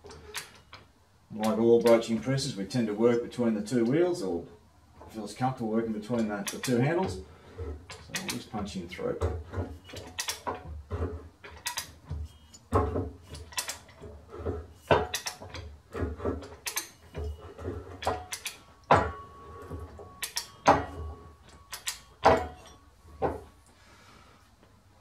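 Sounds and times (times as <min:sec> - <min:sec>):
metal knocks: 0:06.1 - 0:23.6
ratchet clicks: 0:06.2 - 0:06.8, 0:07.9 - 0:08.5, 0:09.8 - 0:10.5, 0:11.5 - 0:12.6, 0:13.2 - 0:14.0, 0:14.8 - 0:15.6, 0:16.5 - 0:17.3, 0:18.0 - 0:19.0, 0:20.2 - 0:20.5, 0:21.7 - 0:22.2.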